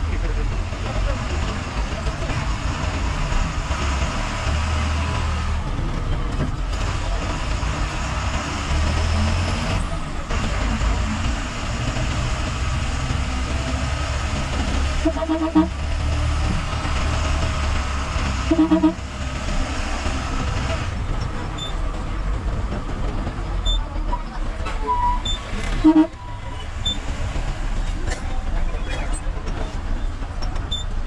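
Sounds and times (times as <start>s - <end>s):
bus engine drone: 0.0s - 31.0s
road noise: 0.0s - 31.0s
short horn toot: 15.0s - 15.8s, 18.5s - 19.0s, 25.8s - 26.2s.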